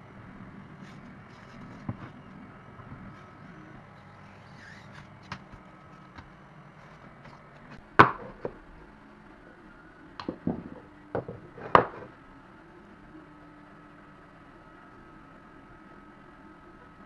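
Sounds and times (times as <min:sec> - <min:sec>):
wooden knocks on board: 0:10.2 - 0:12.1.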